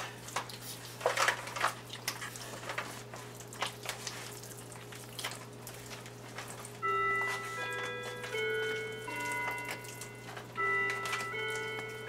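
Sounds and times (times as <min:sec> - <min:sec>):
hands squelching on oily meat: 0:01.7 - 0:07.6.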